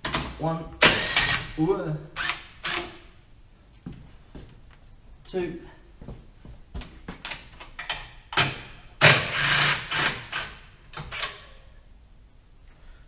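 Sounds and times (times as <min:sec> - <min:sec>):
tool clicking and knocking on metal: 0:07.2 - 0:09.4.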